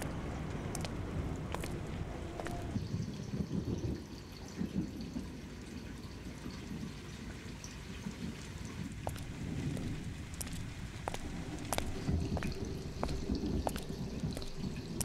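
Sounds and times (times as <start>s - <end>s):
steady low rumble: 0.0s - 3.8s, 8.8s - 15.0s
water trickling and dripping: 0.0s - 15.0s.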